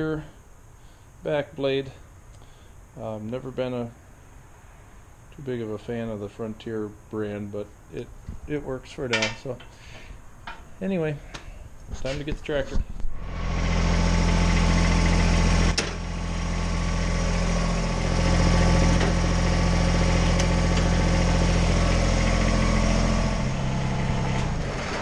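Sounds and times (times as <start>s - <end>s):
diesel tractor engine idling: 13.2s - 25.0s.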